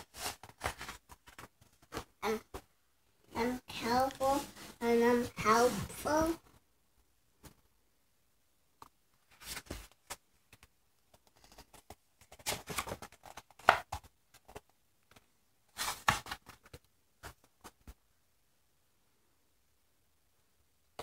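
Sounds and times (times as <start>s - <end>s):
book pages rustling and turning: 0.0s - 2.7s, 3.4s - 6.6s, 8.8s - 18.0s.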